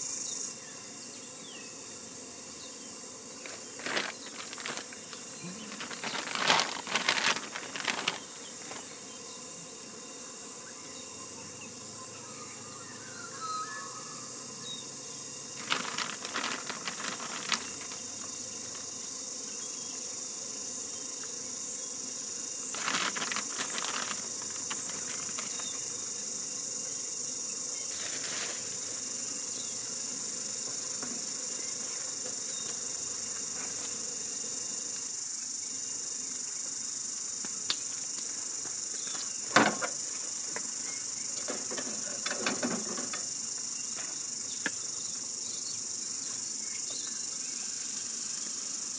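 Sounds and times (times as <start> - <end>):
crickets chirring: 0.0 - 48.9
food packaging rustling: 3.4 - 8.9, 15.6 - 18.3, 22.7 - 25.8, 27.9 - 28.7.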